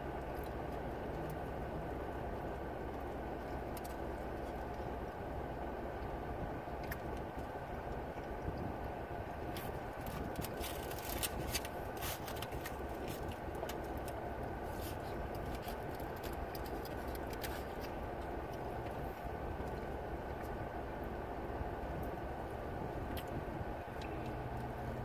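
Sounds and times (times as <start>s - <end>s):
car cabin hum: 0.0s - 25.0s
foil crinkling: 9.5s - 18.0s.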